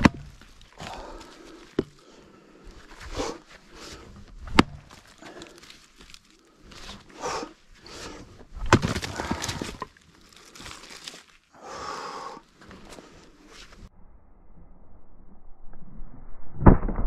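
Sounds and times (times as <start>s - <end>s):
firewood knocking and clattering: 1.7s - 2.0s, 4.0s - 6.3s, 8.5s - 10.0s.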